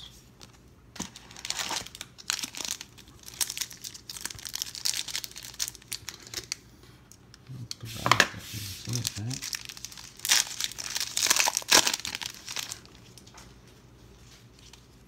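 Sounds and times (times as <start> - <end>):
foil wrapper crinkling and tearing: 1.0 - 6.6, 8.8 - 13.4.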